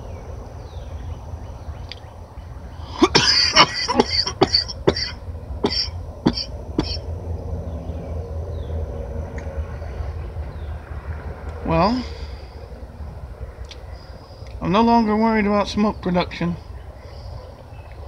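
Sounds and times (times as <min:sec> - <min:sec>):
man coughing hard: 0:03.0 - 0:07.0
low rumble: 0:05.2 - 0:14.7.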